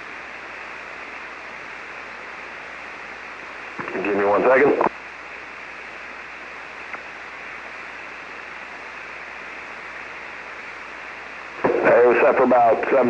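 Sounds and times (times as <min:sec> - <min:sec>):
radio receiver hiss: 0:00.0 - 0:13.0
faint click: 0:06.9 - 0:07.1.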